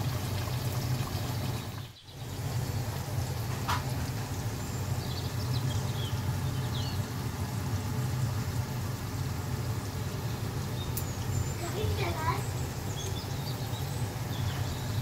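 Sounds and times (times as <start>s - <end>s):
curry bubbling in a pot: 0.0s - 15.0s.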